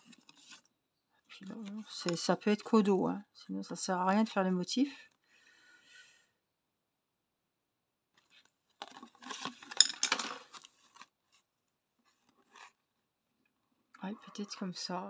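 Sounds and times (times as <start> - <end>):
plastic scraping and clicking: 8.2 - 11.4.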